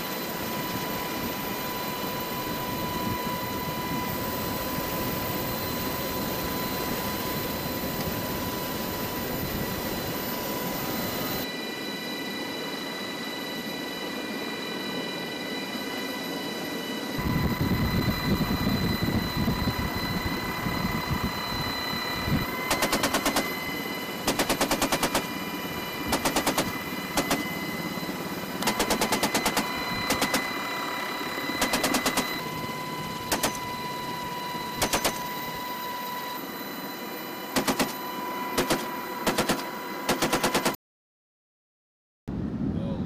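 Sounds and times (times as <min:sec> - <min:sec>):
helicopter cabin noise with whine: 0:00.0 - 0:40.7
machine gun bursts: 0:22.7 - 0:23.5, 0:24.2 - 0:25.3, 0:26.1 - 0:27.4, 0:28.6 - 0:30.4, 0:31.6 - 0:32.3, 0:34.8 - 0:35.2, 0:37.6 - 0:38.0, 0:38.6 - 0:40.8.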